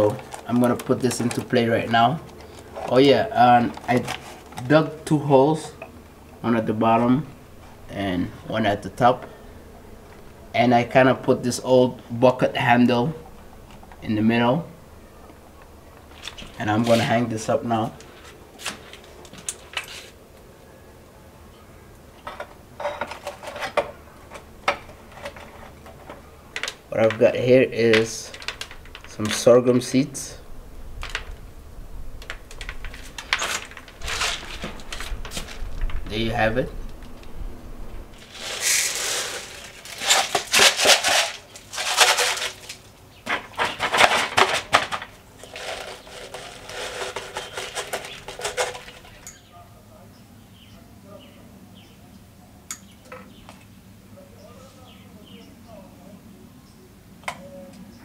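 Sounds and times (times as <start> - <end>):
plastic water bottle rattling: 0.0 - 4.7, 27.9 - 29.5, 32.2 - 36.1, 38.2 - 49.3.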